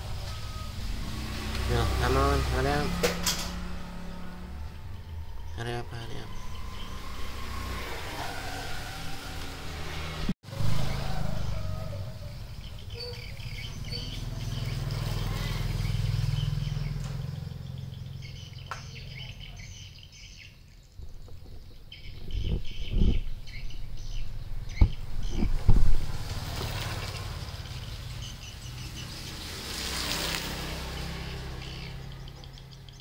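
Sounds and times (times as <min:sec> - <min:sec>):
small birds chirping: 0:12.2 - 0:33.0.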